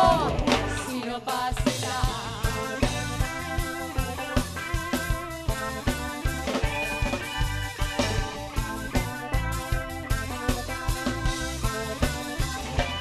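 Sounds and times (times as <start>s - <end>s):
person singing: 0.0s - 3.2s
rock song with guitar and drums: 0.0s - 13.0s.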